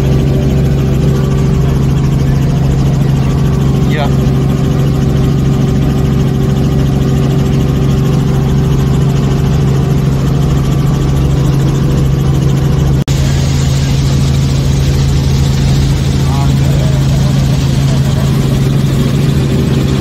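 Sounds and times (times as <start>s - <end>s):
helicopter engine and rotor drone: 0.0s - 20.0s.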